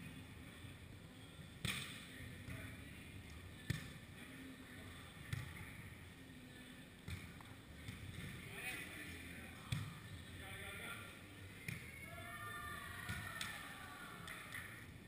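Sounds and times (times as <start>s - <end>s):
hands slapping volleyball: 1.6s - 2.0s, 13.0s - 13.6s.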